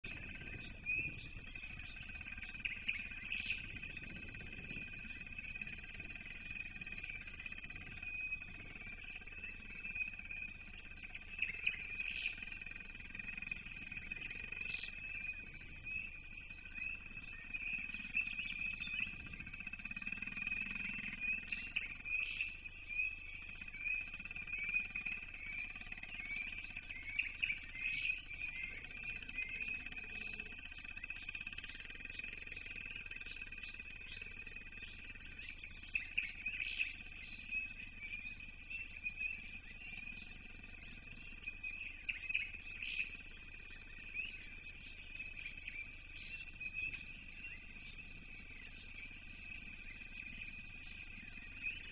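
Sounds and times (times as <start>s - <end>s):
high-pitched insect chorus: 0.0s - 51.9s.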